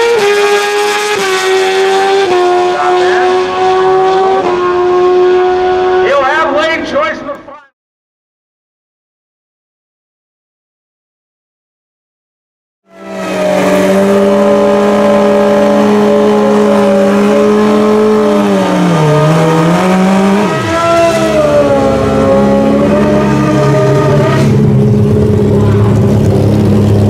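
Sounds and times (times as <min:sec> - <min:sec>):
motorcycle engine revving: 0:00.0 - 0:06.6, 0:12.9 - 0:27.0.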